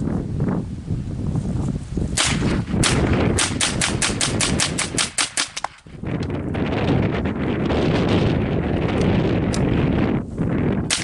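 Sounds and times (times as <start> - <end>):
rifle shots: 2.2 - 5.8.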